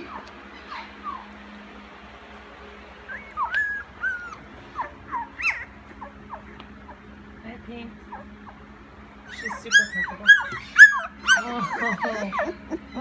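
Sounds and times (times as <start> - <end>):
puppies whimpering: 0.0 - 1.9, 3.0 - 7.2, 8.0 - 13.0.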